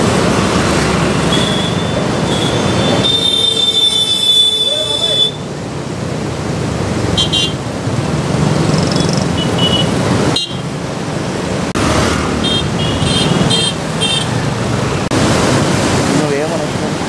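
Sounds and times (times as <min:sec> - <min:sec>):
street traffic: 0:00.0 - 0:17.0
motorcycle engines running: 0:07.2 - 0:10.4.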